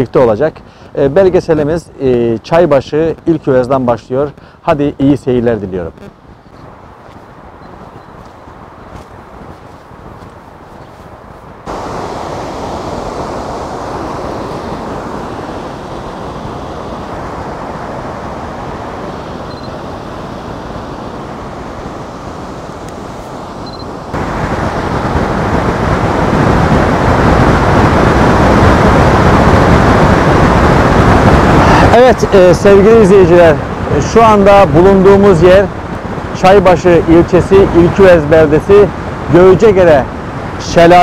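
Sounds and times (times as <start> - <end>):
waterfall roaring: 11.6 - 35.2.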